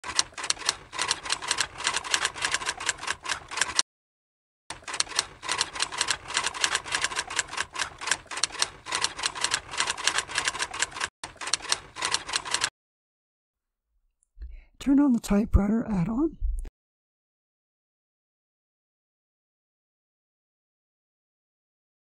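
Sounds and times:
typewriter keys clacking: 0:00.0 - 0:03.8, 0:04.7 - 0:12.7.

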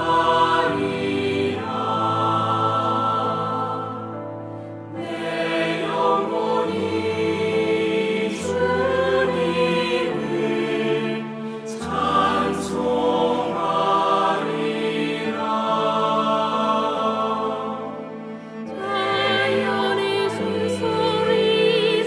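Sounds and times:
woman singing hymn: 0:18.7 - 0:22.0.

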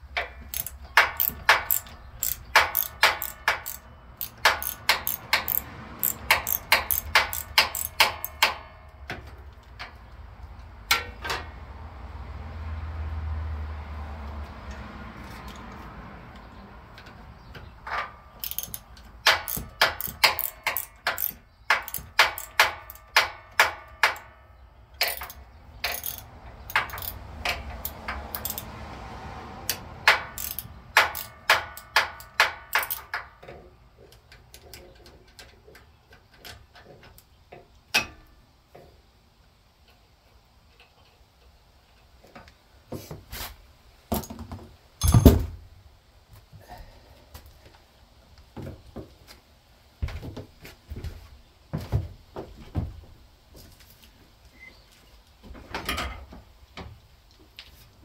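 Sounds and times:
ratchet wrench clicking: 0:00.2 - 0:08.7, 0:18.4 - 0:24.3, 0:25.0 - 0:28.7, 0:29.6 - 0:33.2.

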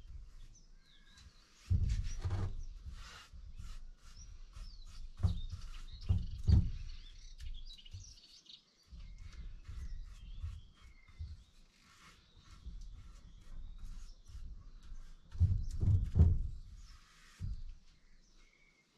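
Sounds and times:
paintbrush scrubbing plastic: 0:00.0 - 0:18.0
small birds chirping: 0:00.0 - 0:18.9
dull knocks: 0:05.2 - 0:08.1, 0:15.3 - 0:17.8.

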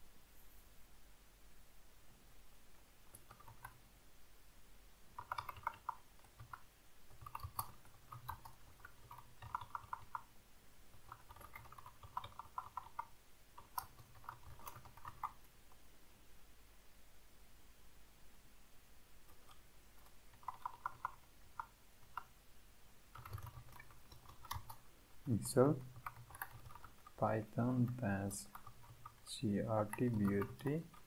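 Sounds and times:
keyboard typing: 0:03.0 - 0:03.8, 0:05.1 - 0:10.3, 0:10.9 - 0:15.5, 0:19.3 - 0:22.3, 0:23.1 - 0:31.0.

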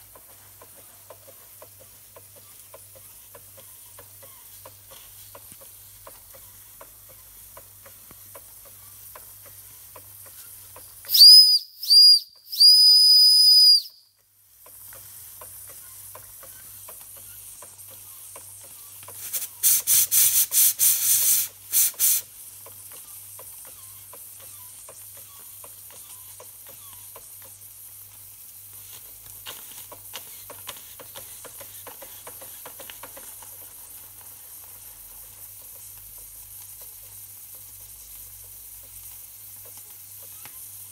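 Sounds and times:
toy steam engine ticking: 0:00.0 - 0:40.9
steam whistle toots: 0:11.1 - 0:14.0
short steam hisses: 0:19.2 - 0:22.4.

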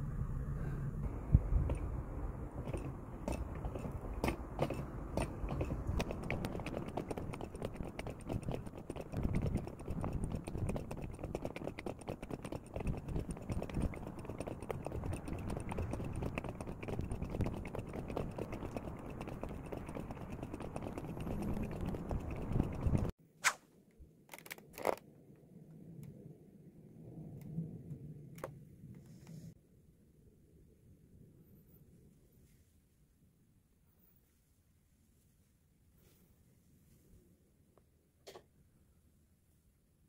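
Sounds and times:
person chewing crunchy food: 0:03.3 - 0:23.1.

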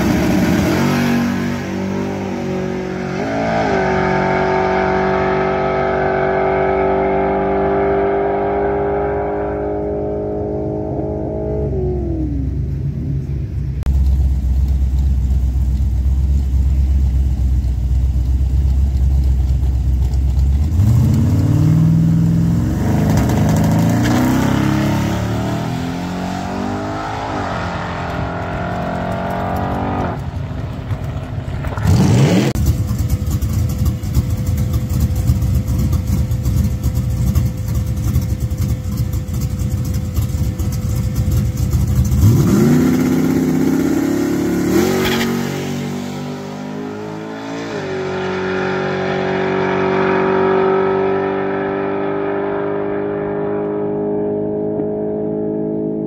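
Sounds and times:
race car engine revving: 0:00.0 - 0:12.8, 0:20.6 - 0:39.4, 0:40.2 - 0:56.0
distant engine: 0:00.0 - 0:56.0
tyre burnout screech: 0:44.4 - 0:45.8.

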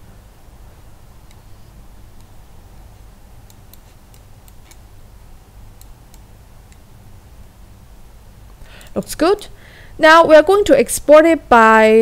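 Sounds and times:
low steady hum: 0:00.0 - 0:12.0
computer mouse clicking: 0:01.2 - 0:01.5, 0:03.4 - 0:04.9, 0:05.7 - 0:06.9.

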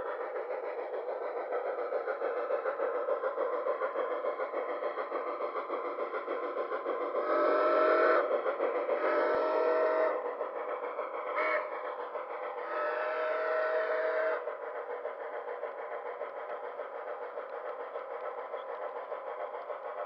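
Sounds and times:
model train running noise: 0:00.0 - 0:20.0
model train whistle: 0:07.2 - 0:08.3, 0:09.0 - 0:10.4, 0:11.3 - 0:11.8, 0:12.6 - 0:14.5.

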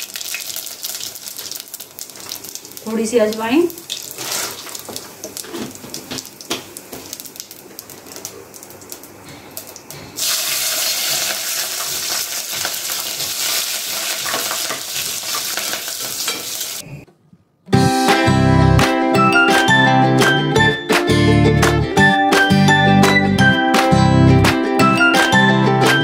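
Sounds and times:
seeds crackling in hot oil: 0:00.0 - 0:16.8
loud steady sizzle: 0:00.0 - 0:16.9.

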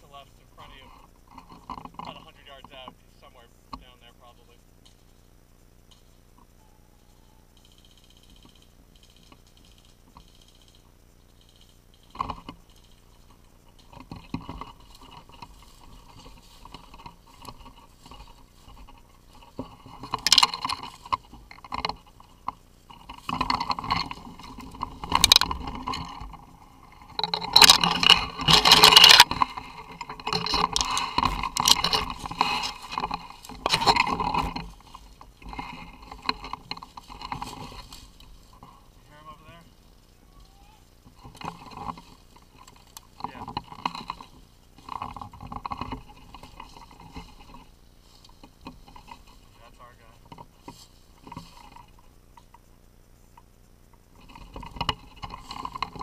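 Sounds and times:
dry brush rustling and scraping: 0:11.8 - 0:52.7, 0:54.0 - 0:56.0.

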